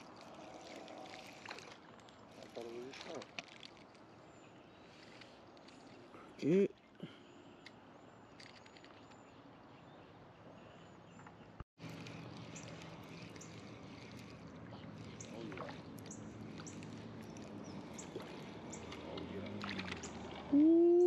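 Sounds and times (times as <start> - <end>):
steady low hum: 11.8 - 21.0.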